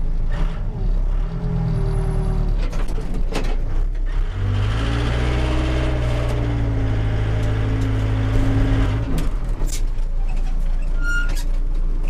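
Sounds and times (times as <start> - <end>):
diesel engine running: 0.0 - 10.9.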